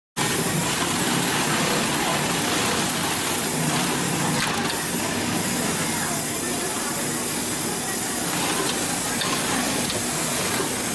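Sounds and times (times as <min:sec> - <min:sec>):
sewing machine stitching leather: 0:00.2 - 0:05.8, 0:07.7 - 0:10.9
mechanical hiss: 0:00.2 - 0:10.9.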